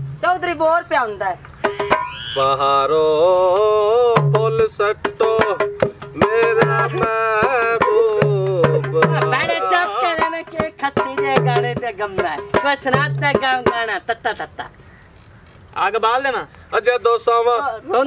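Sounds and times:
barrel hand drum beating: 1.6s - 2.3s, 4.1s - 14.0s
person singing folk song: 1.7s - 13.8s.

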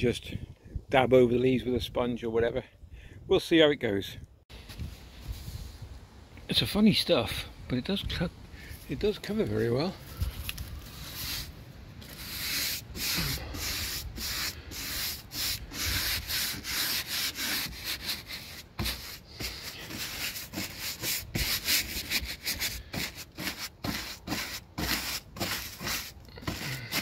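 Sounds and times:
paintbrush swishing on timber: 4.6s - 5.8s, 10.1s - 27.0s.

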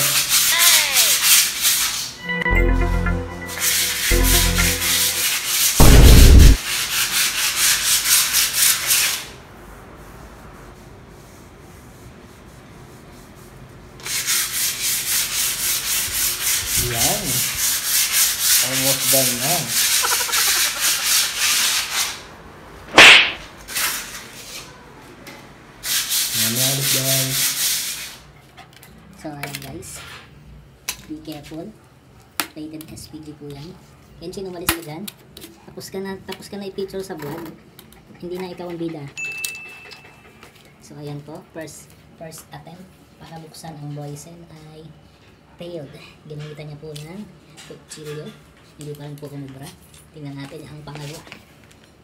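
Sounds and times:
sandpaper scraping a wall: 0.0s - 2.2s, 3.7s - 22.3s, 23.0s - 24.7s, 25.8s - 28.4s
heavy low thump: 5.8s - 6.6s
sharp crack: 5.8s - 6.6s, 22.9s - 23.5s.

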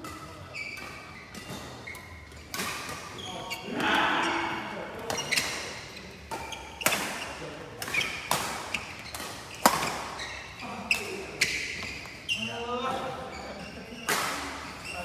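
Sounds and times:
rackets hitting shuttlecock: 0.0s - 10.2s
shoes squeaking on court: 0.0s - 15.0s.

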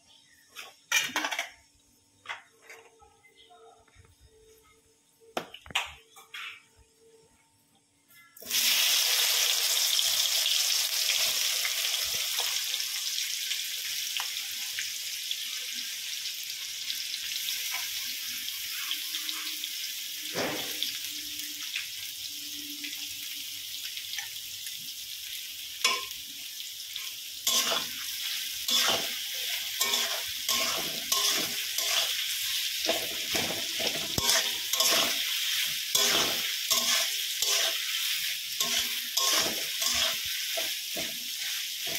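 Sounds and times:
food sizzling in hot oil: 8.3s - 41.9s
spoon scraping a pan: 25.8s - 26.2s, 27.4s - 41.9s.

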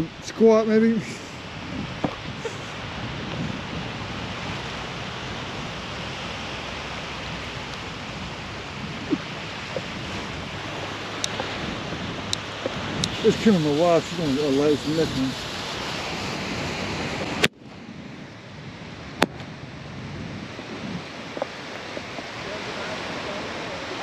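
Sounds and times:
ocean surf washing: 0.0s - 24.0s
wind on microphone: 0.0s - 24.0s
faint sharp clicks: 11.2s - 11.6s.

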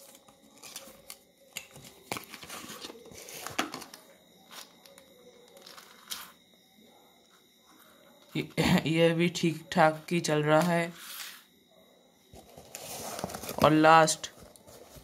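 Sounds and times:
cardboard box scraping and rustling: 12.4s - 13.6s.

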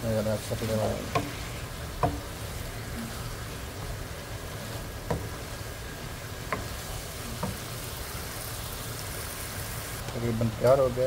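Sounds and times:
spatula stirring in frying pan: 0.0s - 10.8s
spatula knocking against pan: 1.0s - 2.4s, 5.0s - 5.5s, 6.4s - 6.8s.

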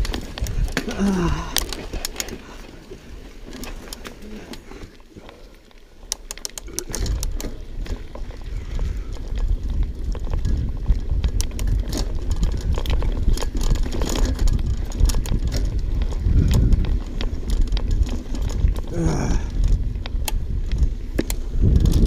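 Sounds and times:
wind rumbling on microphone: 0.0s - 5.4s, 6.3s - 22.0s
bike chain and frame rattling: 0.0s - 22.0s
tyres on dirt: 0.0s - 22.0s.

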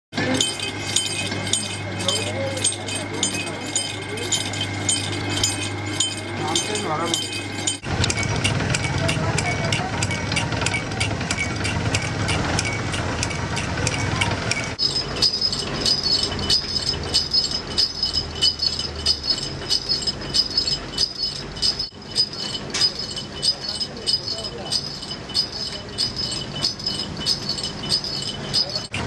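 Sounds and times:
flywheel spinning: 0.2s - 29.0s
pulley machine ticking: 0.2s - 29.0s
small bells jingling: 0.2s - 29.0s.

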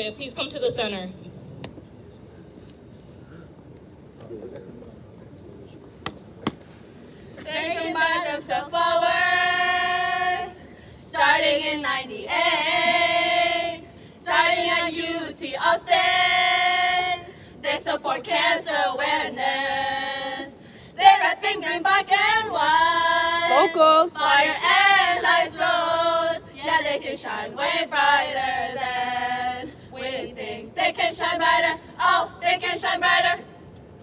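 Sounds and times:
women singing a chant: 7.4s - 33.5s.

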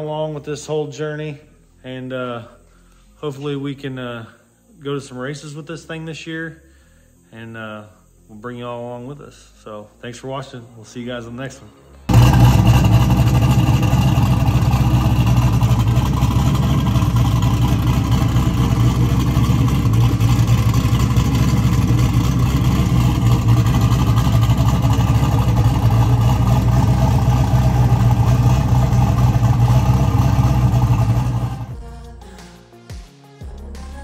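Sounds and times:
turbo engine idling loudly: 12.1s - 31.8s.

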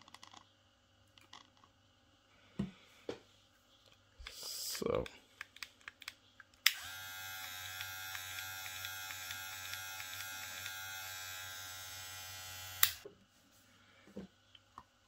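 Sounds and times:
hair clipper buzzing: 6.7s - 13.0s
hair clipper switch click: 6.7s - 13.0s.

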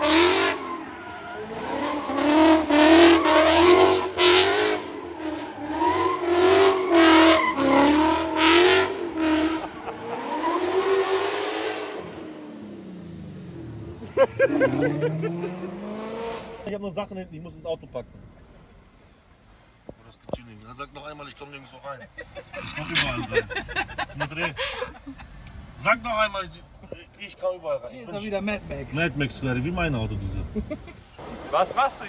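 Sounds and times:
car engine revving: 0.0s - 16.7s.

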